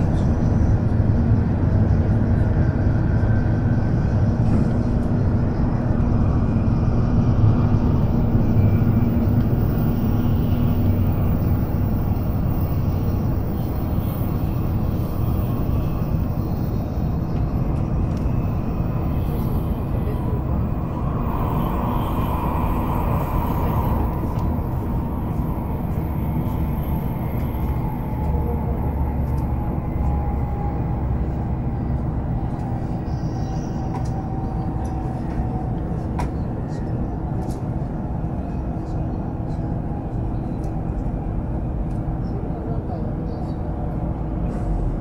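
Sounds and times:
train wheels rumbling on track: 0.0s - 45.0s
faint falling whine: 2.4s - 35.6s.

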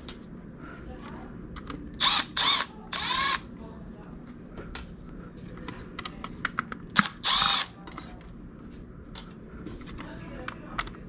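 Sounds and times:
cordless driver motor whine: 2.0s - 3.4s, 7.0s - 7.7s.

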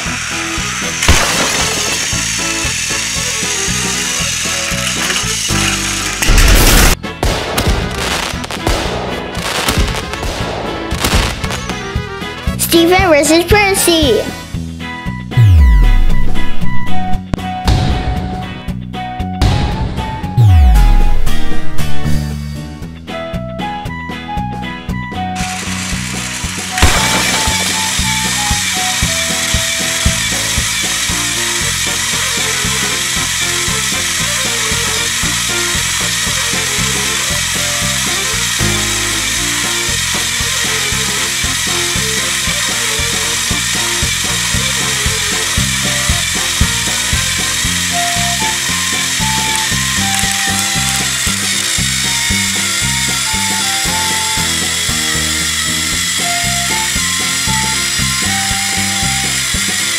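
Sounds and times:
plastic gears grinding: 0.0s - 7.0s, 25.4s - 59.9s
toy electric motors whirring: 0.0s - 7.0s, 25.2s - 59.9s
background music: 0.0s - 59.9s.

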